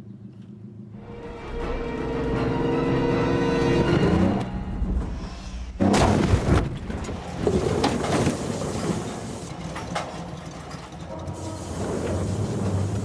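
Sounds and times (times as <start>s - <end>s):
loud crash: 4.8s - 9.0s
car sliding on dirt: 5.8s - 13.0s
clattering: 5.8s - 13.0s.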